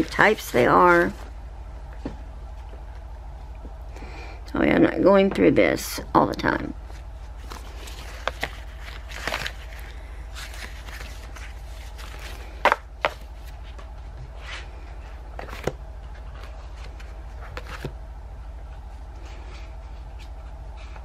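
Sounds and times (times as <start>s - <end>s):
steady low hum: 0.0s - 21.0s
paper rustling: 6.9s - 17.9s.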